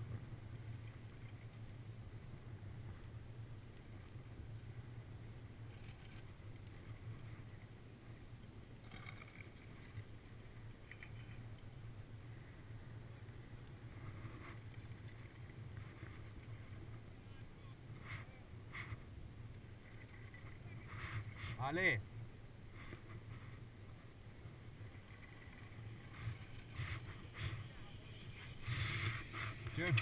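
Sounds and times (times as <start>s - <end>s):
faint scrapes on snow: 17.9s - 19.1s, 19.8s - 22.0s, 22.7s - 30.0s
skis sliding over snow: 22.7s - 30.0s.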